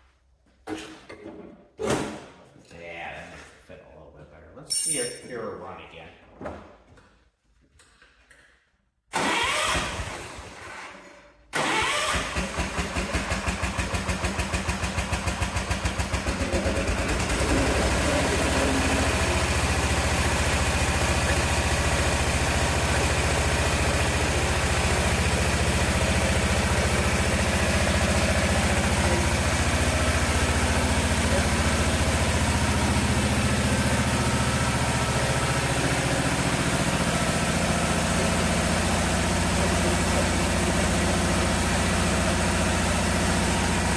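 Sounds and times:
engine starter cranking: 0:09.1 - 0:10.6, 0:11.5 - 0:13.6
engine running: 0:11.6 - 0:43.9.

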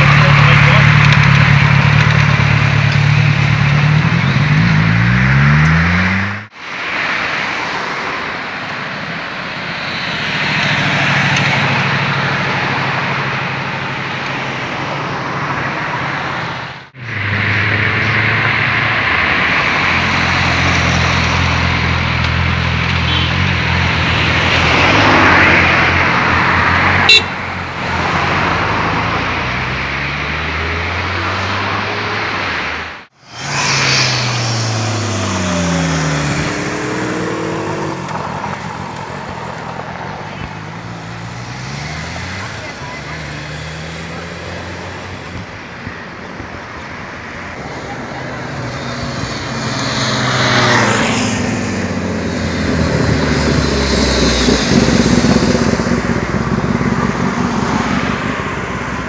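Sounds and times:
motorcycle engine revving: 0:00.0 - 0:06.6, 0:16.8 - 0:45.6, 0:47.7 - 0:59.0
road and traffic noise: 0:00.0 - 0:59.0.

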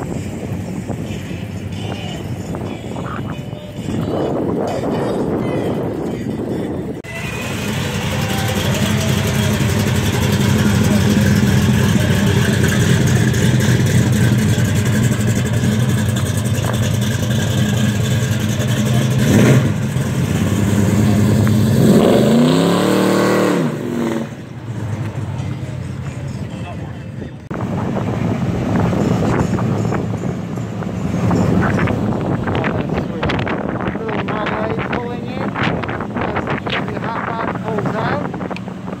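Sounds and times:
car exhaust running: 0:04.0 - 0:26.3
engine rev: 0:06.5 - 0:26.8.

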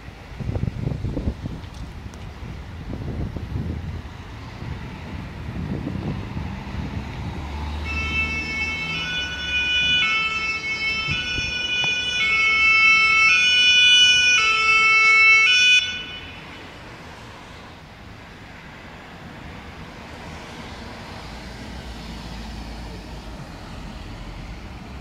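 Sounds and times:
street traffic rumble: 0:00.0 - 0:25.0
two-tone siren: 0:07.7 - 0:16.6.

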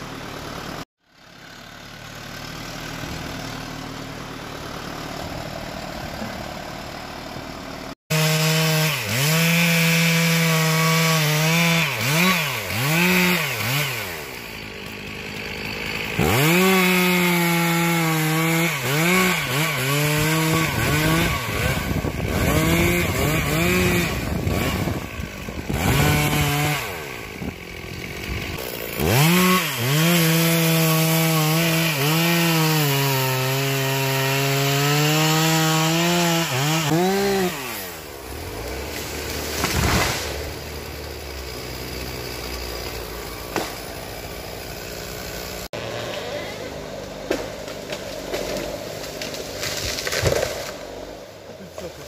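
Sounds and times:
chainsaw cutting: 0:00.0 - 0:52.0
tree falling with breaking branches: 0:38.6 - 0:40.7, 0:47.3 - 0:50.9.

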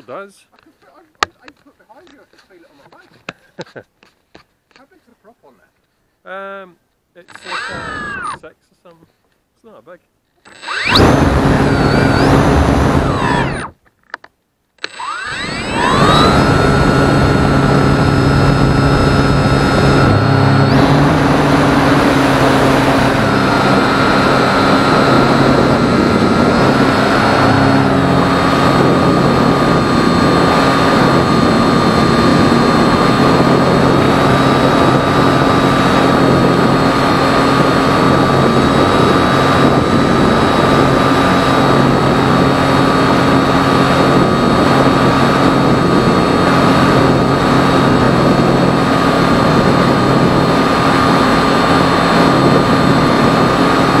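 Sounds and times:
electric motor and propeller whining: 0:07.2 - 0:08.5, 0:10.4 - 0:13.8, 0:14.8 - 0:54.0
rushing wind: 0:07.5 - 0:08.4, 0:10.6 - 0:13.8, 0:15.1 - 0:54.0.

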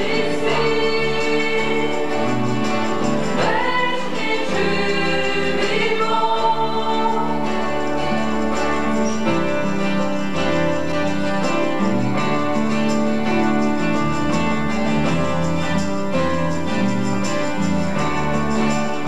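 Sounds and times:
group singing a praise song: 0:00.0 - 0:09.0
live band with bass guitar: 0:00.0 - 0:19.0.

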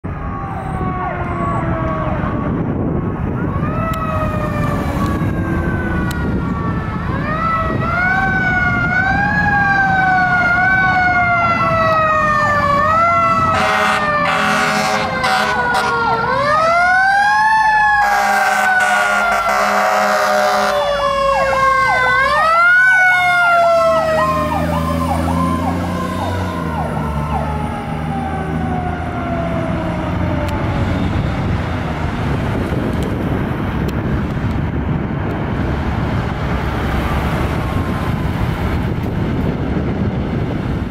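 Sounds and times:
fire engine siren wailing: 0:00.0 - 0:40.9
truck engine rumble: 0:00.0 - 0:40.9
fast pulsing siren: 0:00.1 - 0:31.3
air horn blasts: 0:13.5 - 0:16.2, 0:18.0 - 0:20.9.

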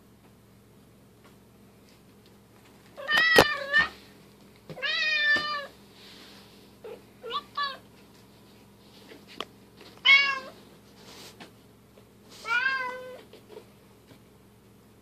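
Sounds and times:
cat meowing: 0:04.8 - 0:05.7, 0:06.8 - 0:07.8, 0:10.0 - 0:10.6, 0:12.4 - 0:13.2.

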